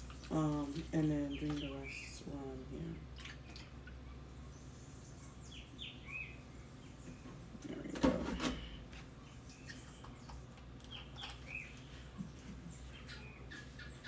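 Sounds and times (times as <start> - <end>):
water glugging from a jug: 2.7 - 4.3
bird chirping: 3.4 - 7.8, 8.6 - 14.0.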